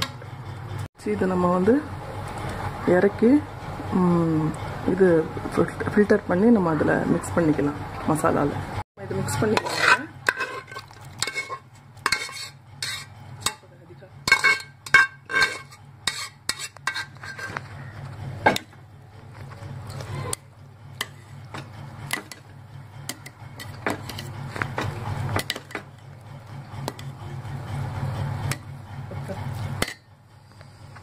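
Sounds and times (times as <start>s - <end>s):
ladle clinking against metal pot: 9.4s - 13.6s, 14.2s - 17.6s.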